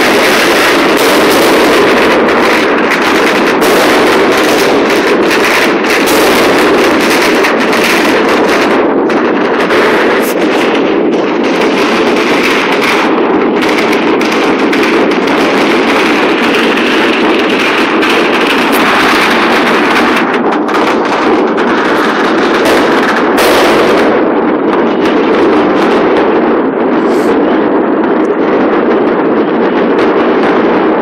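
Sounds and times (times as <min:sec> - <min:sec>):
fireworks crackling and banging: 0:00.0 - 0:31.0.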